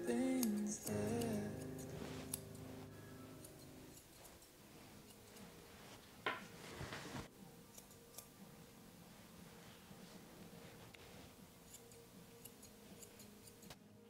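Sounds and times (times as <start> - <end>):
grooming shears snipping: 0.1 - 5.7, 7.7 - 8.5, 10.9 - 13.8.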